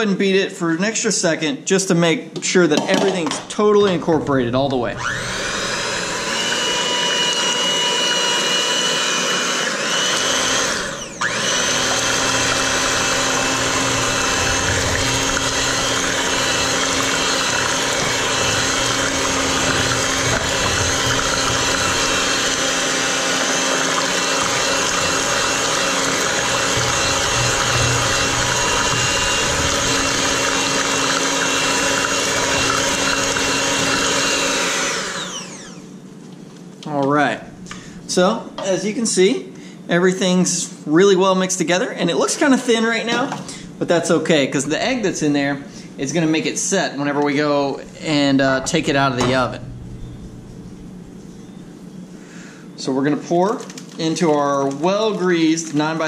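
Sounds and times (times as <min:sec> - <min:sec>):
beaters churning batter: 0:02.7 - 0:35.8, 0:42.2 - 0:50.2
electric hand mixer running: 0:04.9 - 0:36.0.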